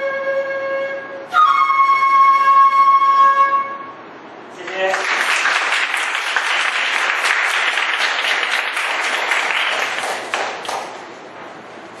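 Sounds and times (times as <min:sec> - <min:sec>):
people applauding: 0:04.6 - 0:11.1.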